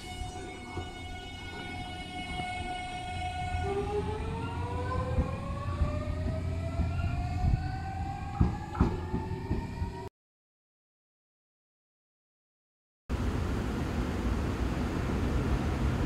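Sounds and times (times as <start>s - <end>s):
train running rumble: 13.2s - 16.0s.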